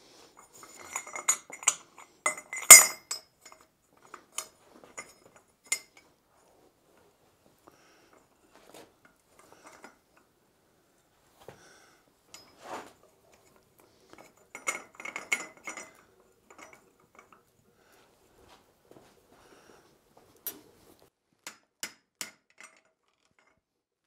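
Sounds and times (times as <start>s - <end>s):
steel clinking and scraping: 0.3s - 6.5s, 7.8s - 10.3s, 12.2s - 18.6s.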